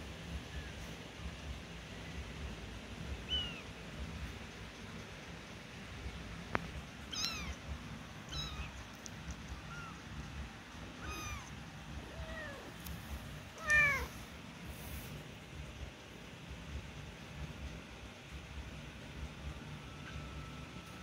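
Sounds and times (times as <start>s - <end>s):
newborn kittens mewing: 3.2s - 3.8s, 7.0s - 14.2s.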